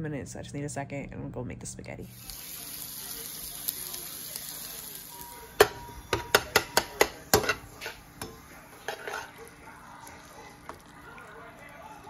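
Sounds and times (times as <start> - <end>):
metal spatula clacking on frying pan: 5.6 - 9.2.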